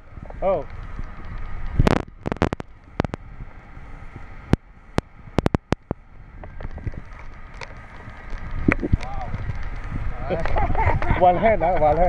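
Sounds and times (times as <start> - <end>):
wind and rain on microphone: 0.0 - 12.0.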